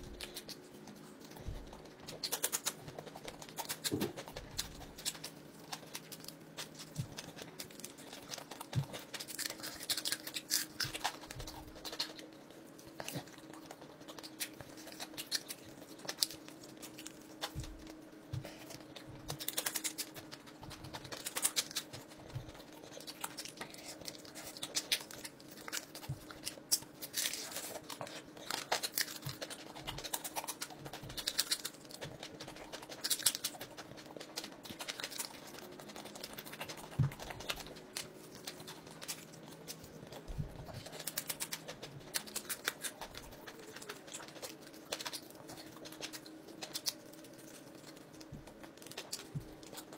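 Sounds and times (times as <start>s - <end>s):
chewing with lip-smacking: 0.0s - 49.9s
faint steady hum: 0.0s - 49.9s.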